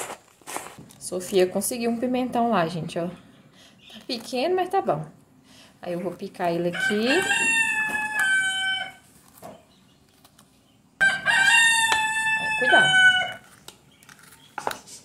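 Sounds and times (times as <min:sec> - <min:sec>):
rooster crowing: 0:06.7 - 0:09.0, 0:11.0 - 0:13.4.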